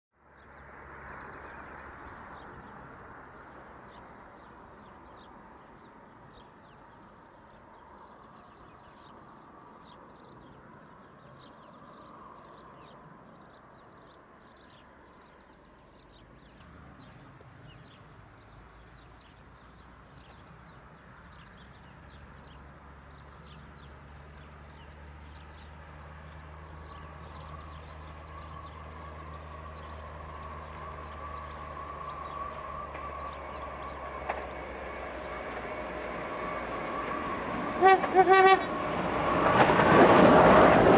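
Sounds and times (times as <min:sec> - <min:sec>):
distant diesel locomotive drone: 0:00.2 - 0:40.9
small birds chirping: 0:03.5 - 0:34.4.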